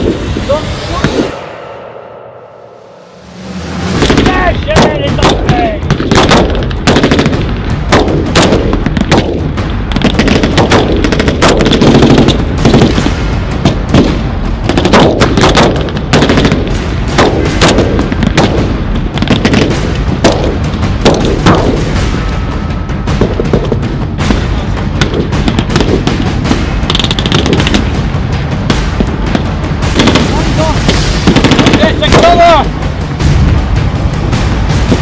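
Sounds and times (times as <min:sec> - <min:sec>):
low rumble: 0:00.0 - 0:35.0
rapid gunfire: 0:04.0 - 0:22.0, 0:25.0 - 0:28.0, 0:28.7 - 0:32.6.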